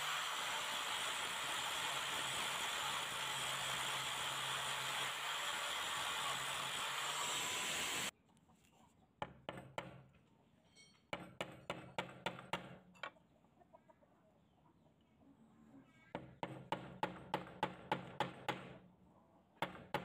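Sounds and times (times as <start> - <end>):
angle grinder grinding metal: 0.0 - 8.1.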